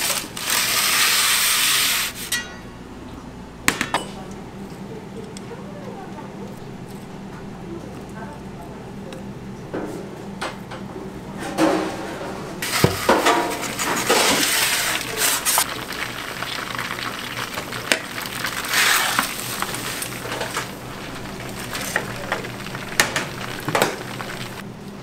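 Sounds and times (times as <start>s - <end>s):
steady low hum: 2.2s - 25.0s
hissing: 13.8s - 24.6s.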